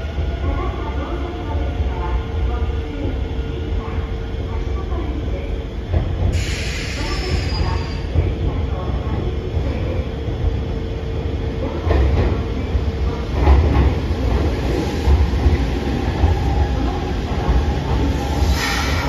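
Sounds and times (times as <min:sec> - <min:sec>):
train low rumble: 0:00.0 - 0:19.0.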